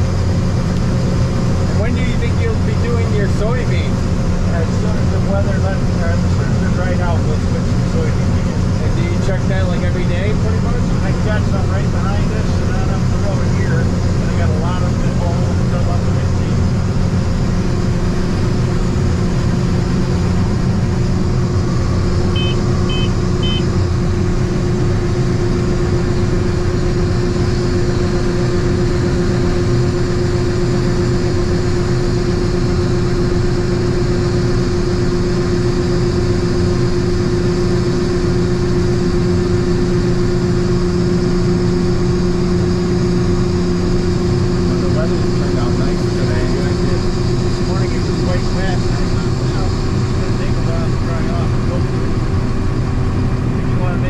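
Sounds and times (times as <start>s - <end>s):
combine engine drone: 0.0s - 54.0s
short high beeps: 22.4s - 23.7s.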